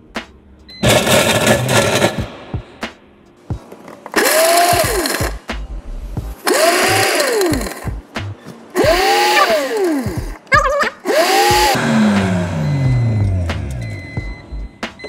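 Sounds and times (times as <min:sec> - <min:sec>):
blender crushing ice: 0:00.8 - 0:02.3, 0:04.2 - 0:05.3, 0:06.5 - 0:07.9, 0:08.8 - 0:10.2, 0:11.0 - 0:12.6.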